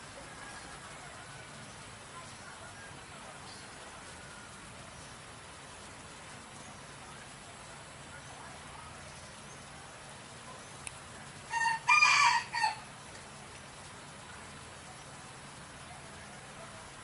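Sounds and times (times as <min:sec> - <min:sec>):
rooster crowing: 0:11.5 - 0:12.9.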